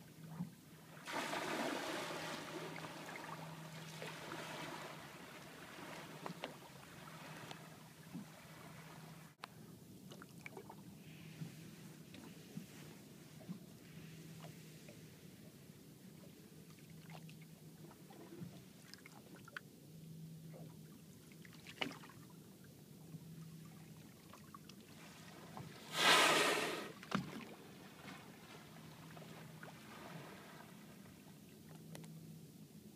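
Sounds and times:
whale blow exhalation: 0:01.1 - 0:03.4, 0:25.8 - 0:27.0.

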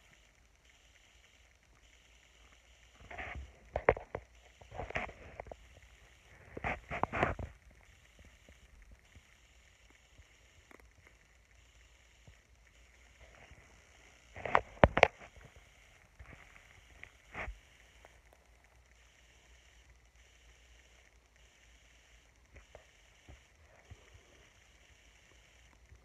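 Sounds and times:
microphone bumps and rubbing: 0:06.5 - 0:07.6.

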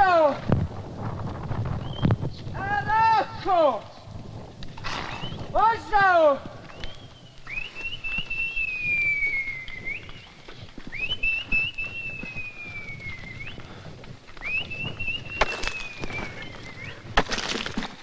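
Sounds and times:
person whistling: 0:06.7 - 0:10.3, 0:10.9 - 0:13.8, 0:14.4 - 0:17.0.

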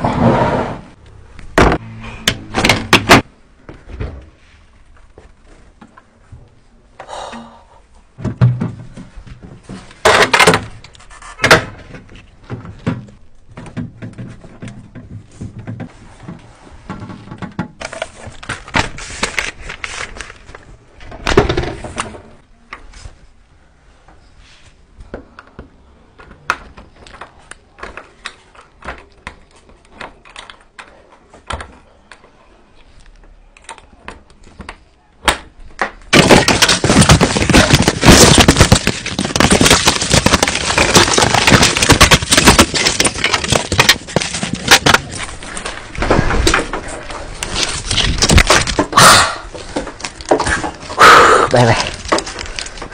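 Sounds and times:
cardboard box tearing: 0:36.2 - 0:45.2.

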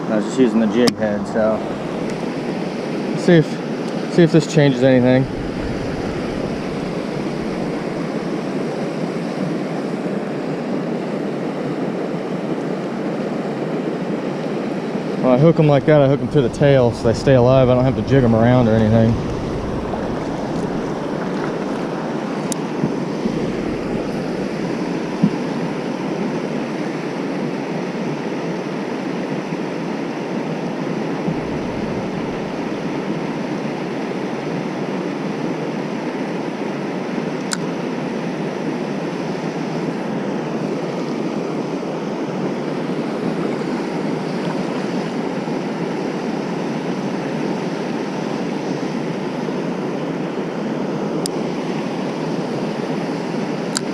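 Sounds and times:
river water rushing over dam: 0:15.0 - 0:26.7.

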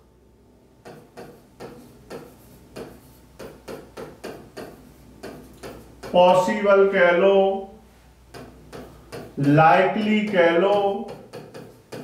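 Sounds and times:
stylus tapping on touchscreen: 0:00.8 - 0:06.4, 0:08.3 - 0:12.0.

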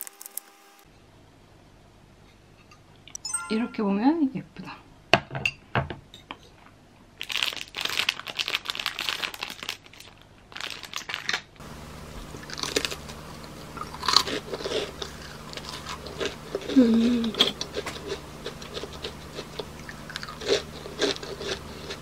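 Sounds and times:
plastic wrapper crinkling: 0:07.2 - 0:11.5
crunchy cookie bites: 0:12.2 - 0:22.0.

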